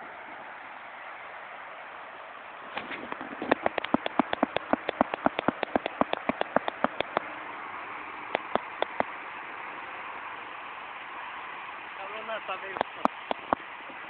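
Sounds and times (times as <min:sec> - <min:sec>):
spraying water hiss: 0:00.0 - 0:14.0
sprinkler ticking: 0:02.8 - 0:07.4, 0:08.3 - 0:09.3, 0:11.0 - 0:14.0.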